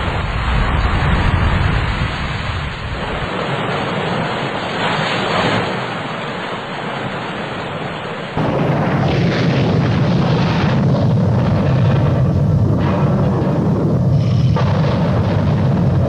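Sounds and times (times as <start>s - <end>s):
deep rumbling and booming: 0.0s - 3.6s, 8.4s - 16.0s
wind: 0.0s - 16.0s.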